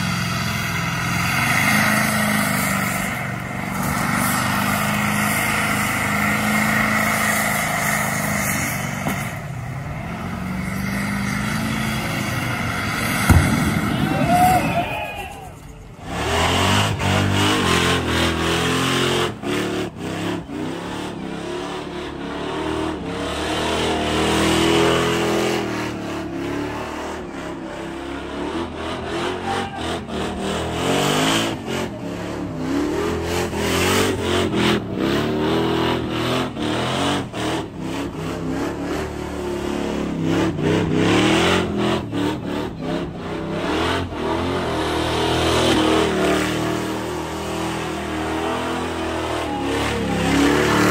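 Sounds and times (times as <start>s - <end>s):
buggy engine revving hard: 0.0s - 14.9s, 16.0s - 50.9s
spinning tires squealing: 0.0s - 50.9s.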